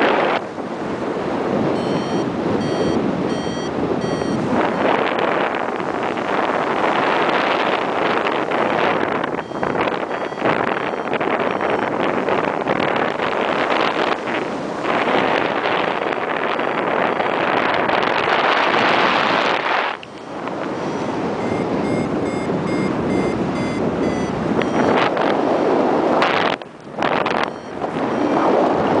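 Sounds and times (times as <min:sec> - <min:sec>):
wind rushing over microphone: 0:00.0 - 0:29.0
short high electronic beeps: 0:01.8 - 0:04.8, 0:09.4 - 0:11.1, 0:21.4 - 0:25.0.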